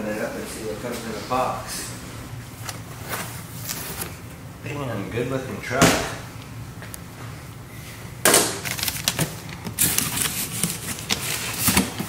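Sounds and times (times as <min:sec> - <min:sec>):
plastic wrapping crinkling: 0:08.6 - 0:12.0.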